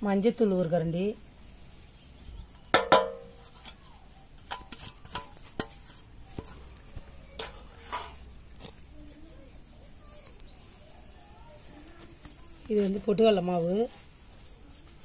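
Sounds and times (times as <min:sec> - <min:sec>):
steel bowl clinking on metal basin: 0:02.8 - 0:03.6
faint bird chirps: 0:06.2 - 0:07.4, 0:08.6 - 0:12.8.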